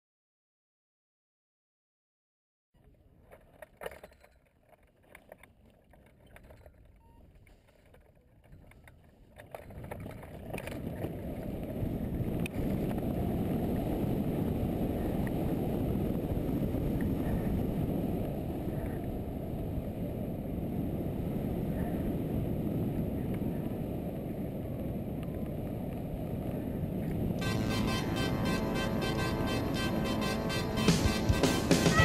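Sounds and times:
wind rushing over microphone: 0:09.6 - 0:32.0.

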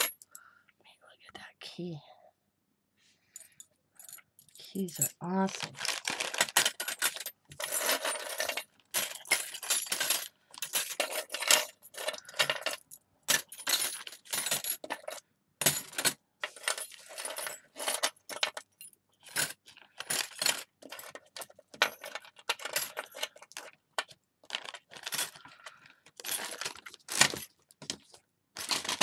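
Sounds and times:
metal charms clinking: 0:03.4 - 0:19.3.

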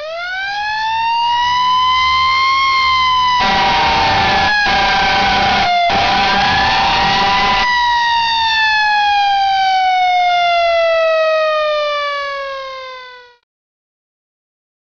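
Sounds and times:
fire truck siren wailing: 0:00.0 - 0:13.4
loud rushing noise: 0:03.4 - 0:07.7.

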